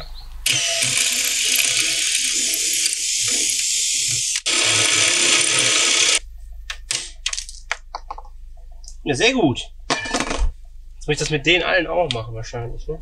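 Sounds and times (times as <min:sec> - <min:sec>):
cordless drill drilling metal: 0:00.4 - 0:06.2.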